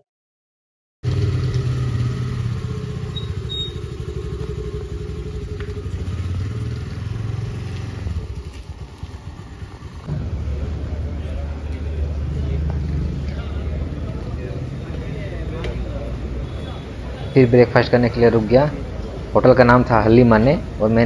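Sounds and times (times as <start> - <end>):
scooter engine running: 1.0 - 17.0.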